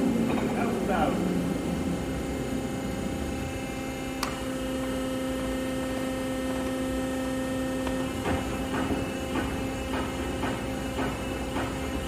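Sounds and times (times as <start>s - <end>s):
lathe humming: 0.0s - 12.0s
lathe control clicks and knocks: 7.8s - 12.0s.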